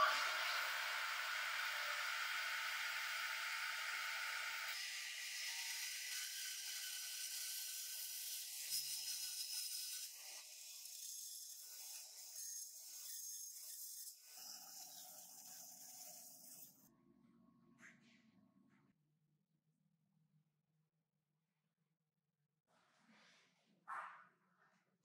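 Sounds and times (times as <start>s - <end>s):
bandsaw cutting wood: 0.0s - 16.8s.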